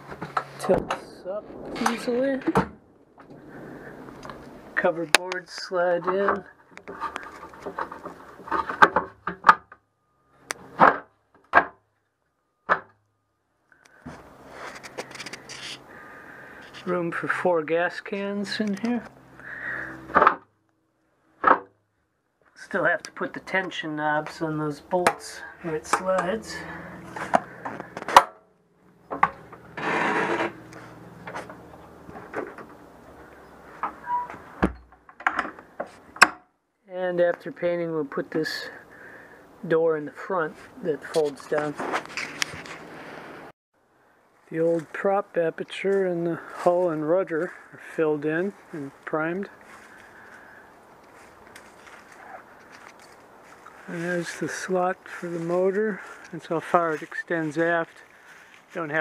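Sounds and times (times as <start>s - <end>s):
wood scraping: 0.0s - 9.7s, 14.0s - 17.4s, 22.6s - 36.3s, 40.5s - 43.5s, 49.5s - 59.0s
low thump: 0.8s - 4.7s
boards scraping and knocking: 29.1s - 32.7s.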